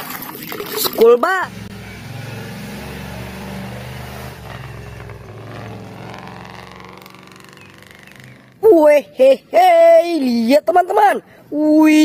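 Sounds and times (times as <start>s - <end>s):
bus engine running at low revs: 1.5s - 8.4s.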